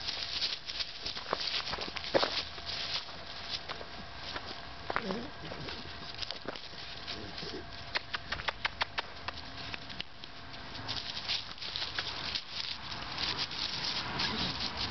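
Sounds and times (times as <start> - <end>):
puppy scrambling in dry grass: 0.0 - 14.9
sharp crackling clicks: 7.9 - 10.3.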